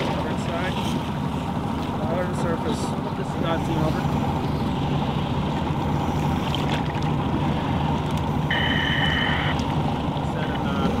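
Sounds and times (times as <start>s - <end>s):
outboard motor idling: 0.0s - 11.0s
high beep: 8.5s - 9.5s.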